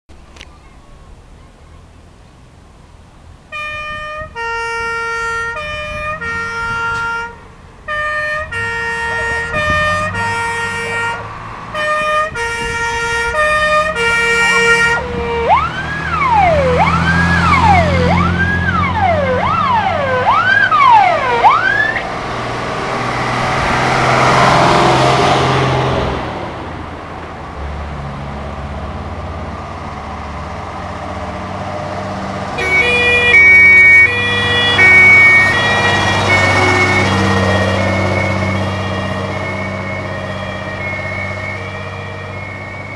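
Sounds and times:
truck engine and tyre noise: 0.1 - 42.9
fire engine siren: 3.5 - 26.2, 28.6 - 42.9.

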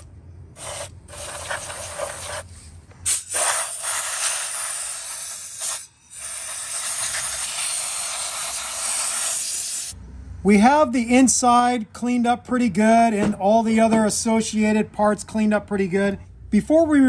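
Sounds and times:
compressed air blasts: 0.0 - 10.0
aerosol spray hissing: 0.6 - 10.0.

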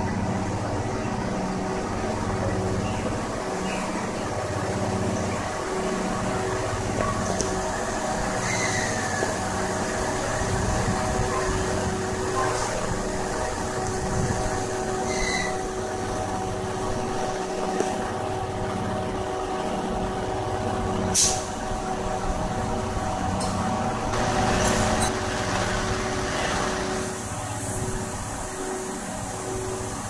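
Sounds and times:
locomotive humming: 0.0 - 30.0
air hissing: 21.1 - 21.6.

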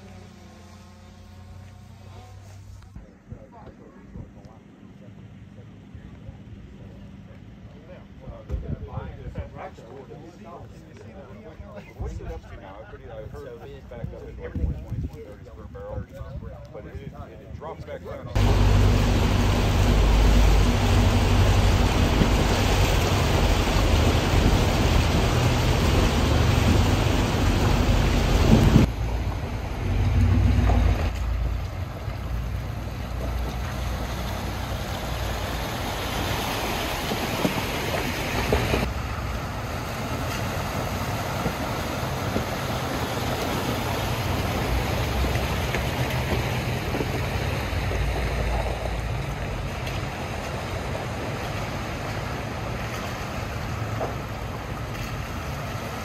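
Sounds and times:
vehicle engine rumble: 0.0 - 12.5, 18.1 - 56.0
water sloshing and splashing: 18.4 - 56.0.

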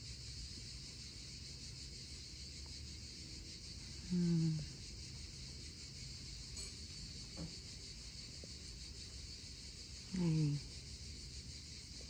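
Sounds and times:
insects chorus: 0.0 - 12.0
low humming voice: 4.0 - 4.8, 10.1 - 10.7.

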